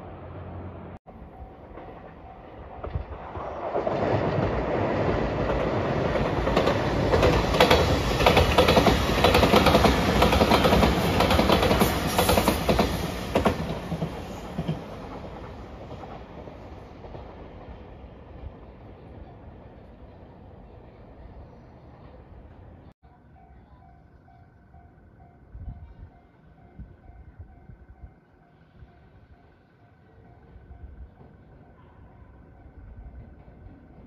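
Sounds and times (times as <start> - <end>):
train passing with rushing roar: 0.0 - 34.0
train wheel clicks: 5.4 - 17.7.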